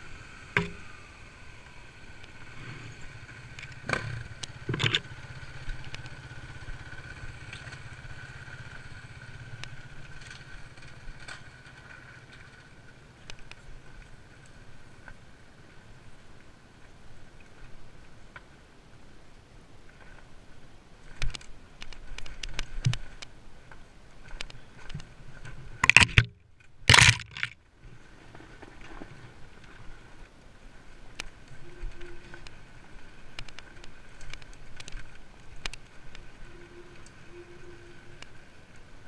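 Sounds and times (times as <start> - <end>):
muffled dirt bike engine whine: 0.0 - 15.0, 24.4 - 27.6, 31.2 - 39.0
clicks and rattles from bumps: 3.6 - 5.1, 24.3 - 27.6.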